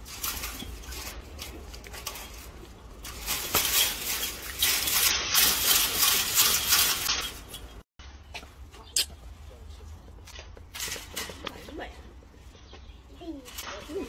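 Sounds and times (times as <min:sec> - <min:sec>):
monkeys rattling chain-link fence: 0:00.0 - 0:07.8, 0:10.3 - 0:11.9.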